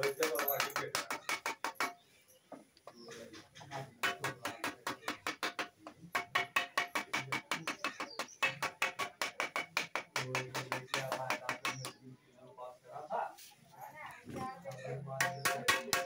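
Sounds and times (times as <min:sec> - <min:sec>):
wooden mallet striking steel sheet: 0:04.0 - 0:12.0, 0:15.2 - 0:16.0.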